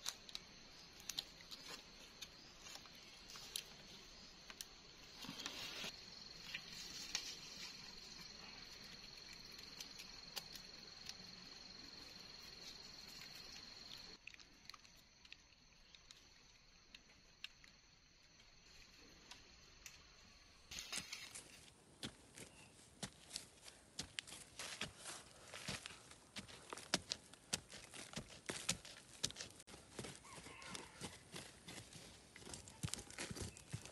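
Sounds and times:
stick scraping soil: 5.1 - 7.9.

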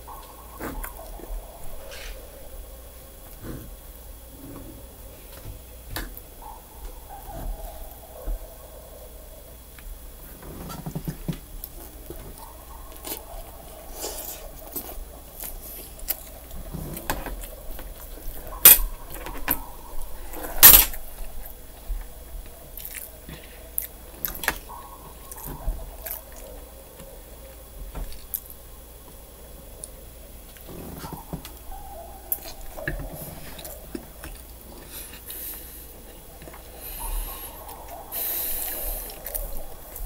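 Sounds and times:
utensils clicking on plate: 18.6 - 19.6.

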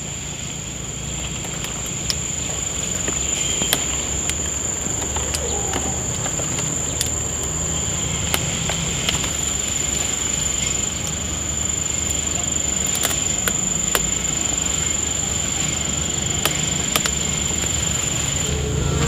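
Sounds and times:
insects shrilling: 0.0 - 19.0.

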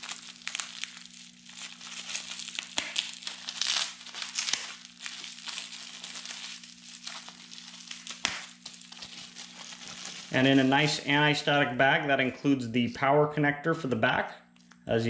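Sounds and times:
plastic packaging crinkling: 0.0 - 11.1.

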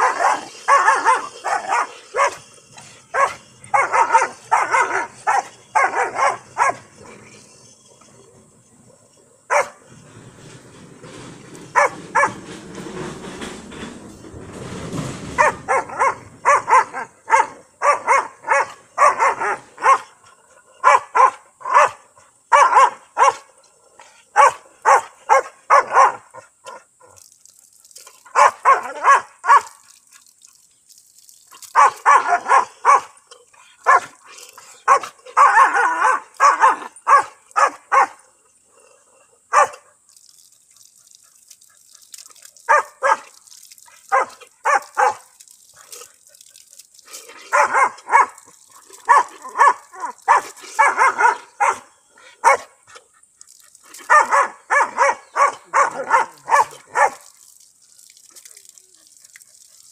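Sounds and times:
dog barking: 0.0 - 2.4, 3.1 - 6.8, 9.5 - 9.8, 11.7 - 12.4, 15.4 - 20.1, 20.8 - 23.5, 24.4 - 26.8, 28.3 - 29.7, 31.8 - 33.1, 33.8 - 34.1, 34.8 - 38.2, 39.5 - 39.9, 42.7 - 43.4, 44.1 - 45.3, 47.5 - 48.4, 49.0 - 52.7, 54.1 - 57.3
water running from a tap: 24.8 - 33.1, 40.1 - 51.5, 53.4 - 59.9.

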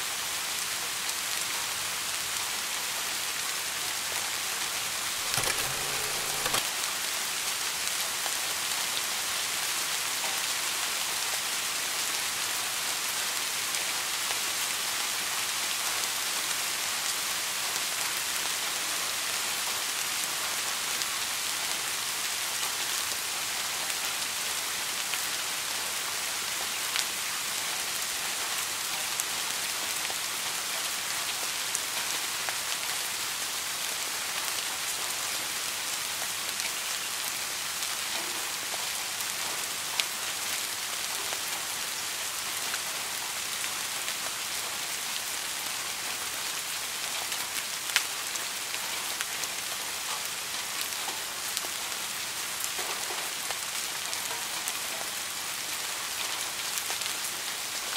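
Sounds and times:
steady rain hiss: 0.0 - 57.9.

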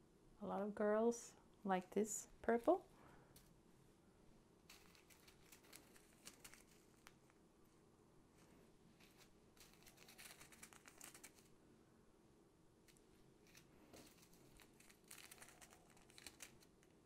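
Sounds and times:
plastic bags crinkling: 4.7 - 7.2, 9.0 - 11.5, 13.5 - 17.0.

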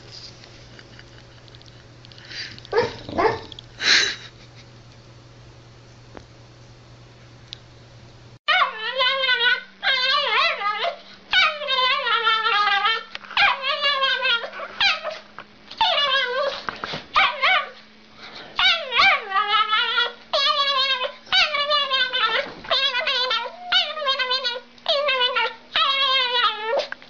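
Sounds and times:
faint steady hum: 0.0 - 27.0
dog whining and howling: 2.7 - 3.6, 8.5 - 17.8, 18.6 - 27.0.

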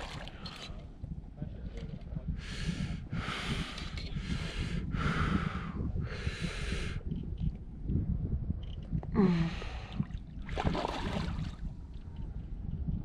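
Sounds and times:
wind rumble on microphone: 0.0 - 13.0
person breathing hard: 2.4 - 7.0, 9.2 - 10.1.

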